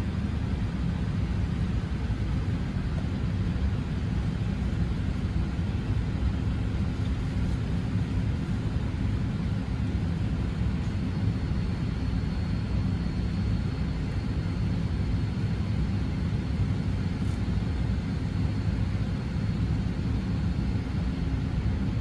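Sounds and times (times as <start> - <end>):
airliner cabin rumble: 0.0 - 22.0.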